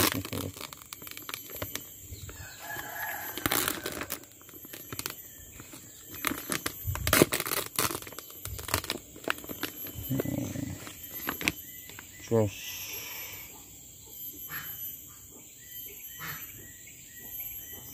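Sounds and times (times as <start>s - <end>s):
plastic and foil crinkling: 0.0s - 12.0s.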